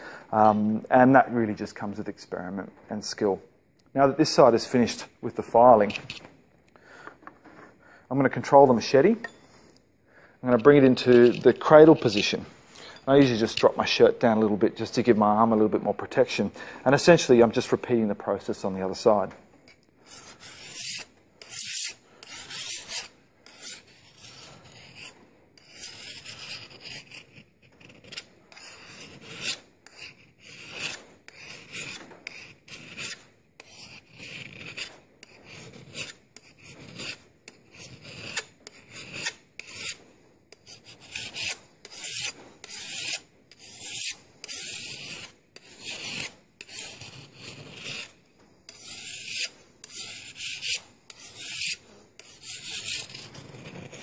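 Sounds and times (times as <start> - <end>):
file rasping on a blade edge: 20.0 - 54.0.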